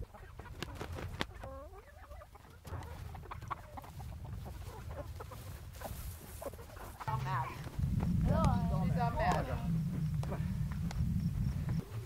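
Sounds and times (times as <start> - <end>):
chickens clucking: 0.0 - 12.0
low wind rumble: 3.1 - 12.0.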